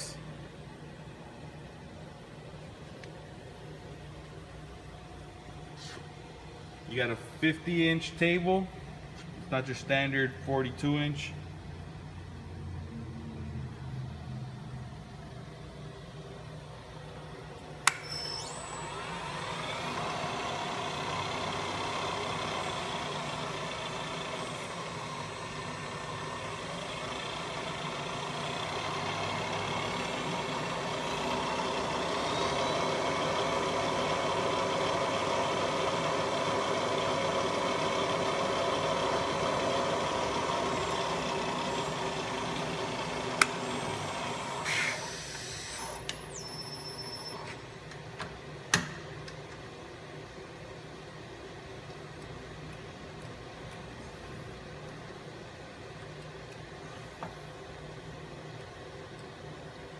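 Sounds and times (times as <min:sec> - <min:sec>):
mill spindle motor spinning: 0:15.8 - 0:59.9
switch click: 0:17.8 - 0:18.2.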